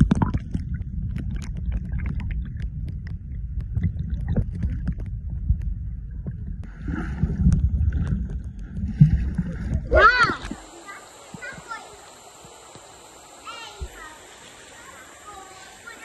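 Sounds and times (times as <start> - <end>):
muffled stream rumble: 0.0 - 16.0
muffled high-pitched hiss: 6.6 - 16.0.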